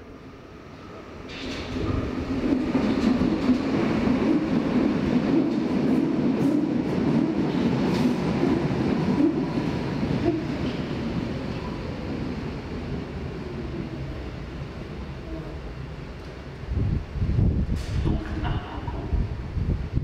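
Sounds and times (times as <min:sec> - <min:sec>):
underground train running: 0:00.0 - 0:20.0.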